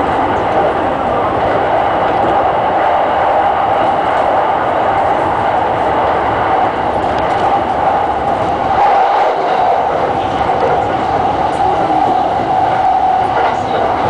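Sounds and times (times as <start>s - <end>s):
train wheels rolling on rails: 0.0s - 14.0s.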